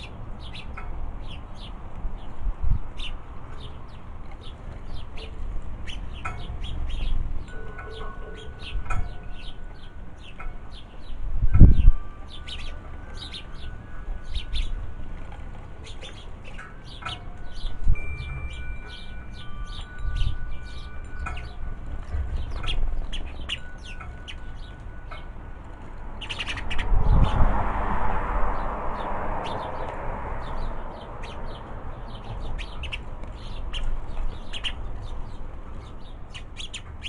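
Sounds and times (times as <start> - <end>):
songbirds chirping: 0.0 - 37.0
wind rumble on microphone: 0.0 - 37.0
metal wind chimes ringing: 6.1 - 27.3.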